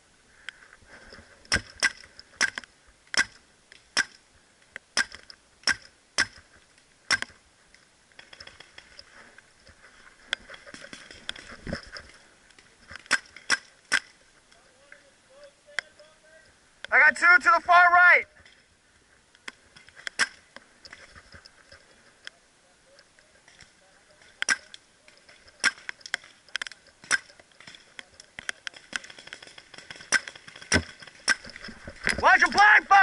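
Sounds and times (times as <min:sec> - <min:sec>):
paintball gun shots: 0:27.0 - 0:27.4.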